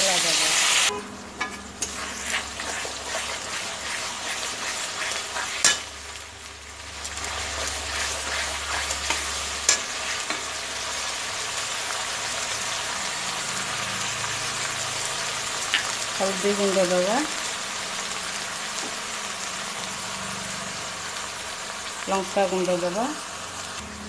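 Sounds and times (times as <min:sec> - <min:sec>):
spice paste sizzling in hot oil: 0:00.0 - 0:23.9
metal spatula scraping pan: 0:00.9 - 0:06.0, 0:07.2 - 0:10.6.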